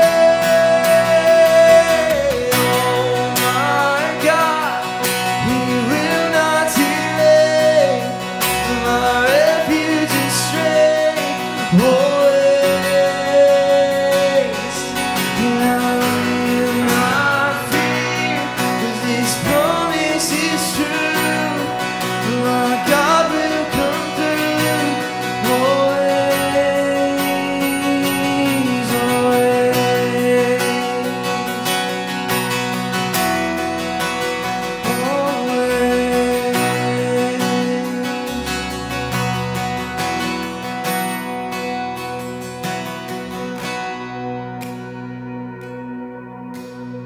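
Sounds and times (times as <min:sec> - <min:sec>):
person singing: 0:00.0 - 0:32.0, 0:33.9 - 0:39.3
strummed acoustic guitar: 0:00.0 - 0:47.0.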